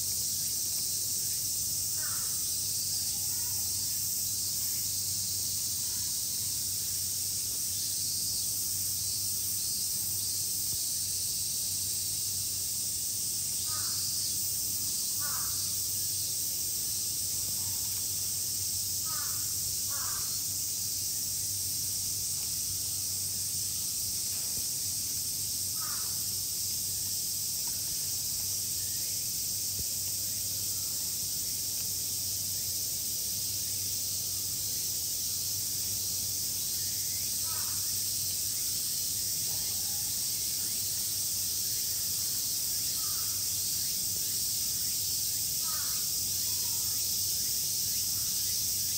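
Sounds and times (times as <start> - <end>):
steady high-pitched hiss: 0.0 - 48.9
crow cawing: 2.0 - 2.4, 13.7 - 14.0, 15.2 - 15.7, 19.1 - 20.4, 25.8 - 26.2, 37.4 - 37.8, 45.6 - 46.0.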